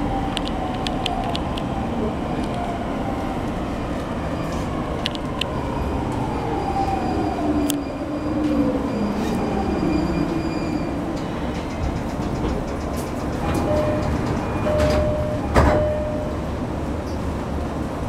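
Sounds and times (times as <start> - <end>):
wheels rumbling on rails: 0.0 - 18.0.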